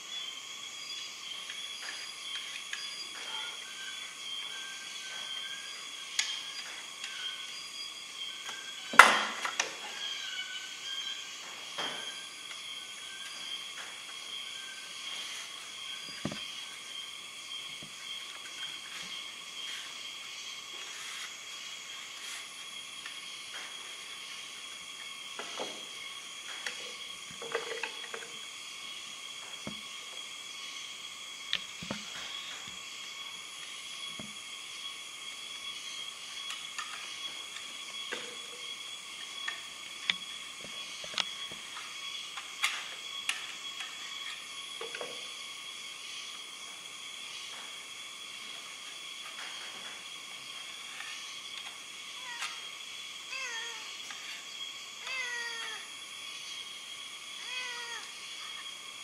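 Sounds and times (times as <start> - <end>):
constant high tones: 0.0 - 59.0
steady high hiss: 0.0 - 59.0
wooden board and tools knocking: 16.1 - 16.5, 27.3 - 28.3.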